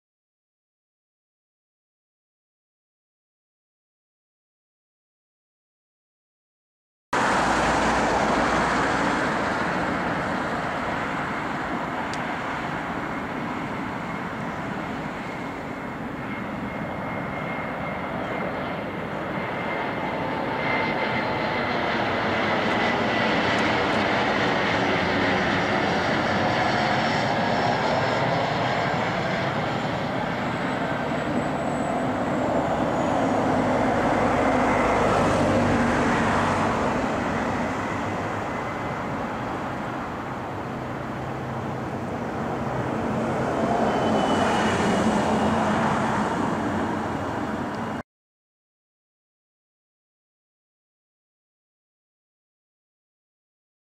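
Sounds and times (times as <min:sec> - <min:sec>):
jet rush with high whine: 0:07.2 - 0:48.0.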